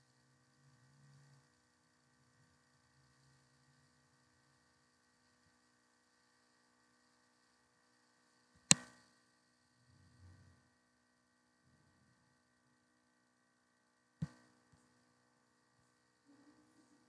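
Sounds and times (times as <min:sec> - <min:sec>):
faint electrical hum: 0:00.0 - 0:17.0
computer mouse click: 0:08.6 - 0:09.0
faint low rumble: 0:09.5 - 0:10.9.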